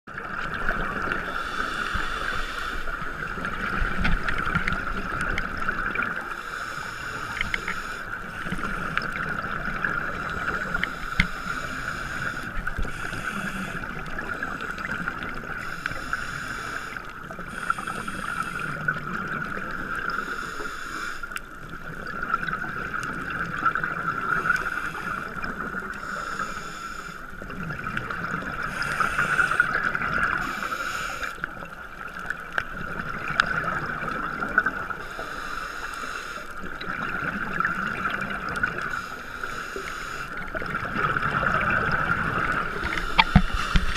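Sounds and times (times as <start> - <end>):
exhaled bubbles hissing: 0.2 - 43.9
regulator breathing: 1.3 - 3.1, 6.3 - 9.1, 10.1 - 18.8, 24.4 - 27.3, 28.7 - 29.8, 30.4 - 31.5, 35.0 - 36.6, 38.8 - 40.4, 42.7 - 43.9.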